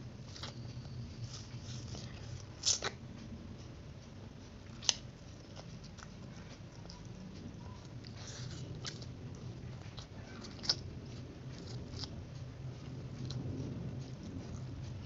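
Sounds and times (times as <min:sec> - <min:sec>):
noodles being slurped and chewed: 0:04.8 - 0:15.0.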